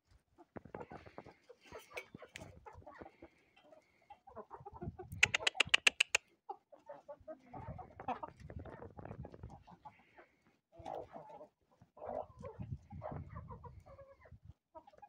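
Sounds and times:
hens and roosters clucking: 0.4 - 15.0
fast run of sharp clicks: 5.2 - 6.2.

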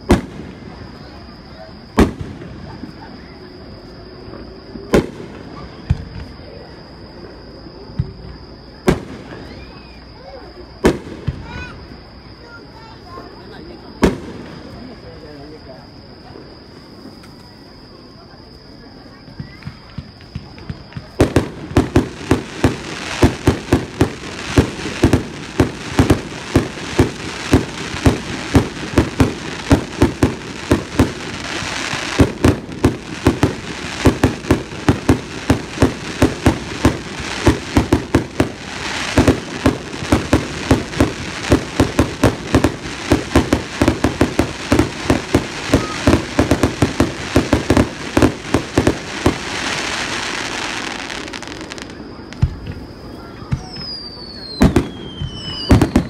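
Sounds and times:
continuous hiss: 0.0 - 56.0
fireworks shells bursting: 19.6 - 56.0.

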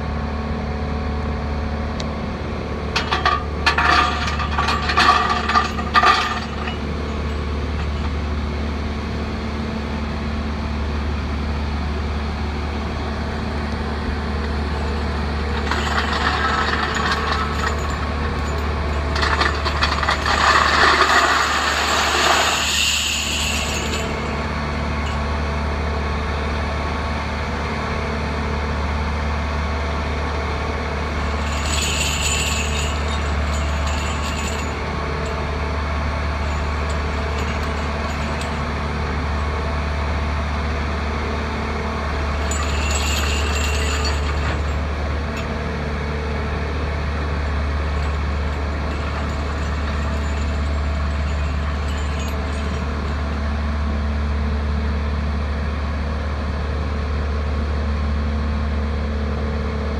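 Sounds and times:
high metallic jingling: 3.0 - 8.2, 14.8 - 25.2, 31.2 - 35.5, 36.4 - 38.8, 42.4 - 45.5, 47.9 - 53.4.

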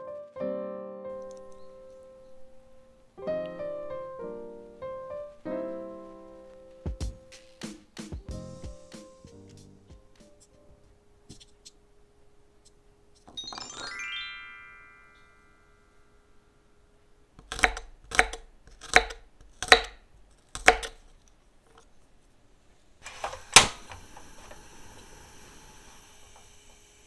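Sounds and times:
gas burner hissing: 23.0 - 27.0
gas stove igniter snap: 23.2 - 24.2.

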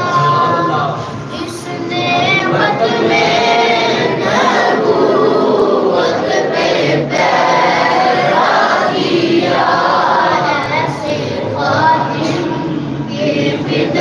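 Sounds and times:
men chanting together: 2.4 - 14.0.

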